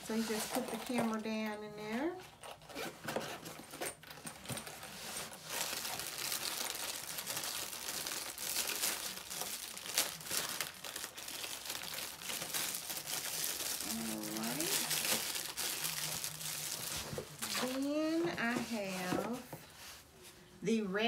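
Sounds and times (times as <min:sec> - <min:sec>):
packaging crinkling: 0:02.3 - 0:18.7.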